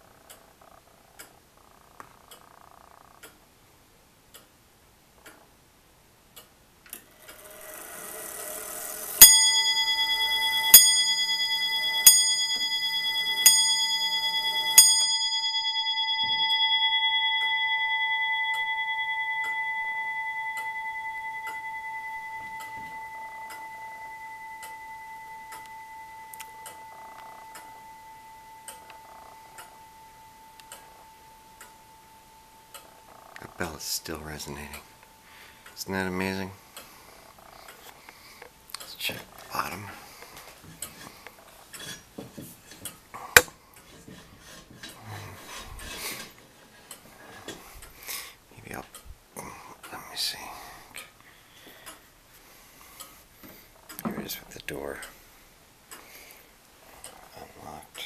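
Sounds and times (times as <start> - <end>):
clock ticking: 4.2 - 37.0
clock bell striking: 8.0 - 36.6.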